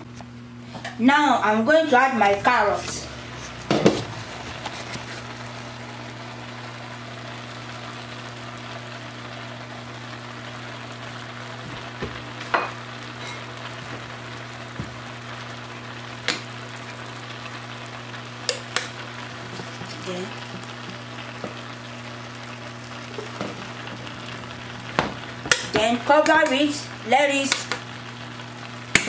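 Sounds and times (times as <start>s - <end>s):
rice bubbling in pot: 3.0s - 29.0s.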